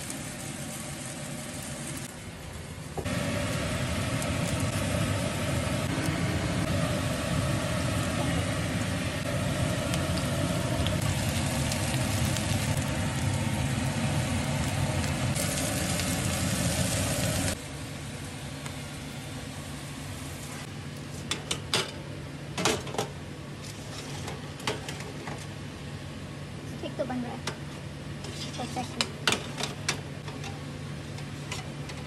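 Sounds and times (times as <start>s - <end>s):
vegetables sizzling in frying pan: 0.0s - 2.2s, 3.1s - 20.7s.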